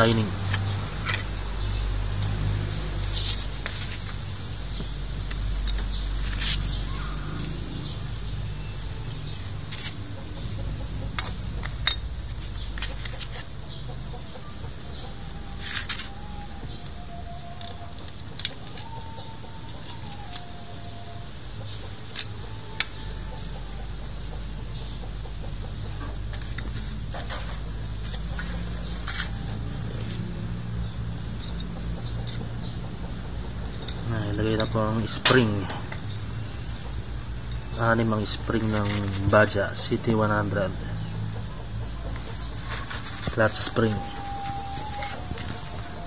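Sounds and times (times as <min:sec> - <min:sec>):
low hum: 0:00.0 - 0:13.9
light metal clinks and taps: 0:09.2 - 0:14.4, 0:30.8 - 0:39.9.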